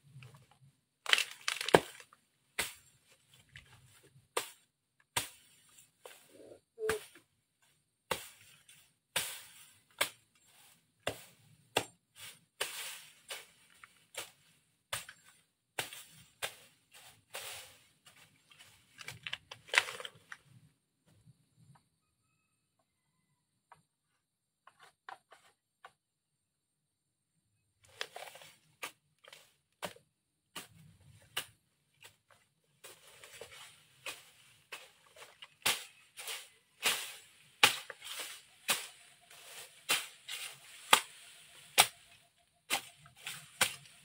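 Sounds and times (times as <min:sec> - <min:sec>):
rustle of falling stems: 0:00.1 - 0:06.2, 0:08.1 - 0:20.6, 0:27.8 - 0:44.0
machete slashing through grass: 0:33.5 - 0:44.0.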